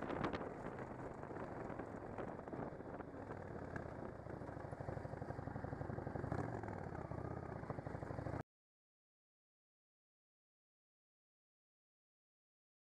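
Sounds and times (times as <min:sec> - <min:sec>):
motorcycle engine running: 0:00.0 - 0:08.4.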